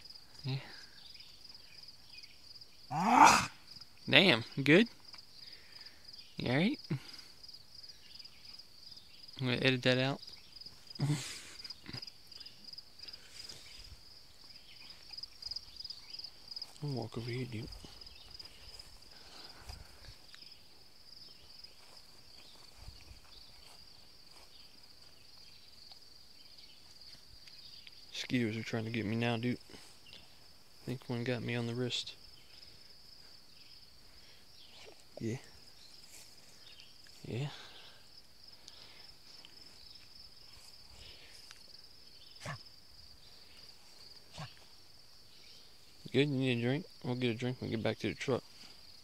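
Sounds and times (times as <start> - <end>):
insects chorus: 0.0 - 49.0
footsteps through undergrowth: 13.1 - 27.4, 35.5 - 37.4, 39.2 - 41.8.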